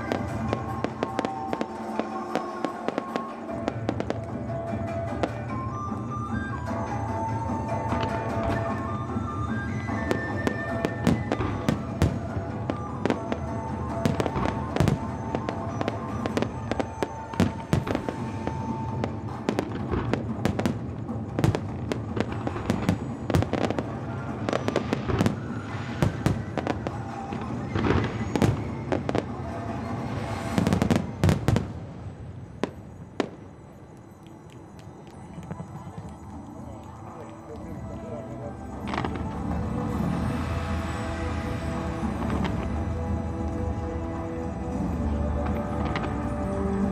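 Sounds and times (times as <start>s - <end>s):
fireworks bangs and crackles: 0.0s - 46.9s.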